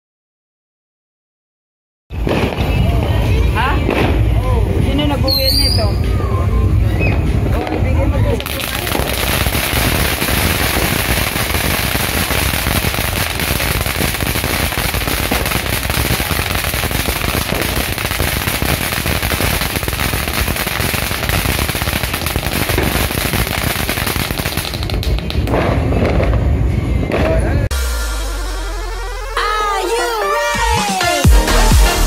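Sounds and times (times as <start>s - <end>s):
firework fountain crackling: 2.1s - 27.6s.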